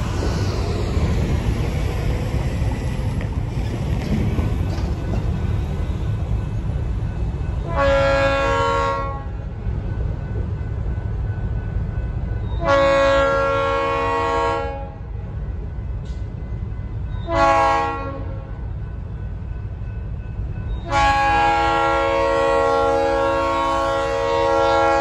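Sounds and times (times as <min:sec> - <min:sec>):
locomotive air horn blasts: 0:07.6 - 0:09.4, 0:12.6 - 0:15.0, 0:17.3 - 0:18.4, 0:20.8 - 0:25.0.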